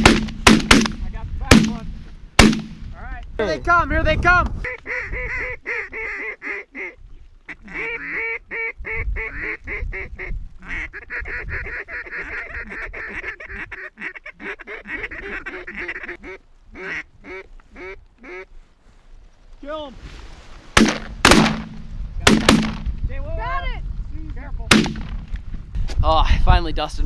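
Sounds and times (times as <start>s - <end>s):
ducks quacking: 4.6s - 18.6s.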